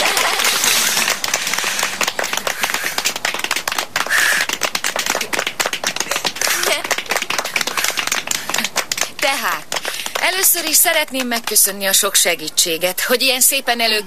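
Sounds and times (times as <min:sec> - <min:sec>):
people clapping: 0:00.0 - 0:12.2.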